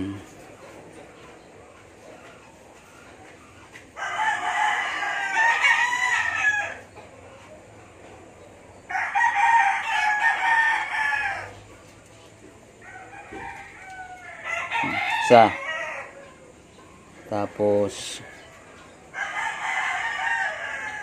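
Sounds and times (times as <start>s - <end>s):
rooster crowing: 4.0s - 6.8s, 8.9s - 11.7s, 12.8s - 16.5s, 18.0s - 21.0s.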